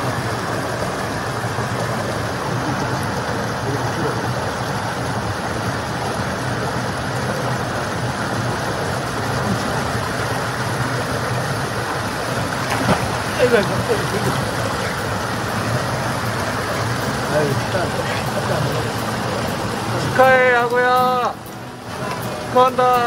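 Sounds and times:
waterfall rushing over rocks: 0:00.0 - 0:23.0.

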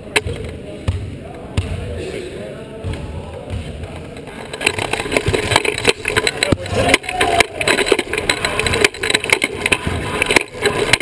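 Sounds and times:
wheelchair rattling on hardwood: 0:04.5 - 0:11.0.

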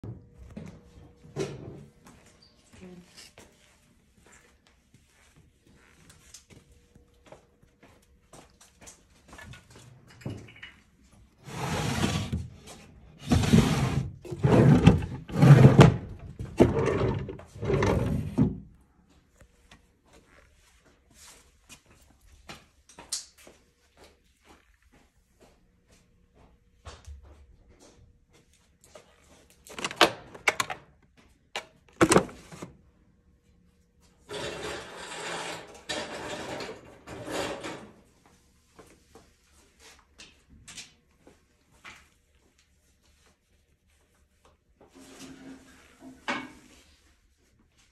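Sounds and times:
scraping or rustling: 0:11.4 - 0:18.5
wooden drawers sliding: 0:11.4 - 0:18.6.

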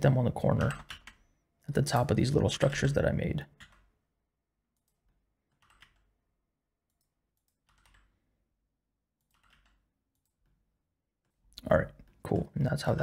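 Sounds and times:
keyboard and mouse clicks: 0:00.5 - 0:01.3, 0:04.8 - 0:06.1, 0:06.9 - 0:08.2, 0:09.2 - 0:10.6.

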